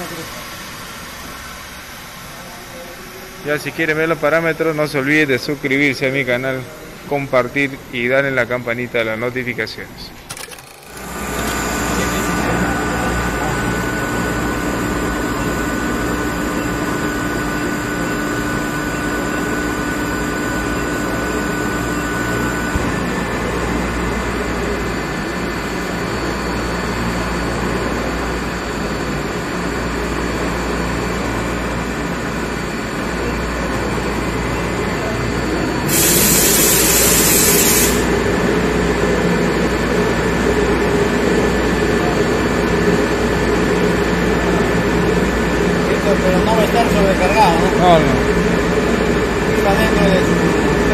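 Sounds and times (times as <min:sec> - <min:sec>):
air compressor humming: 0:10.1 - 0:50.9
loud air hiss: 0:35.8 - 0:38.2.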